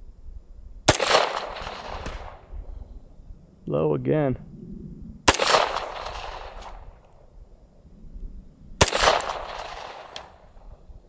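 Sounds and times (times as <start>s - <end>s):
pistol shots echoing: 0.9s - 2.5s, 5.3s - 6.9s, 8.8s - 10.6s.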